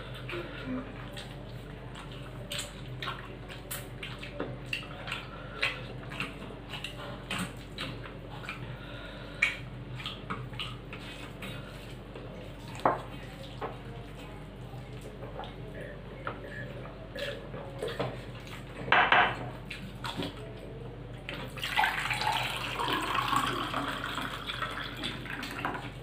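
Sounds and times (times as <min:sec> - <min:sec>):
wet chewing: 0:00.1 - 0:15.6.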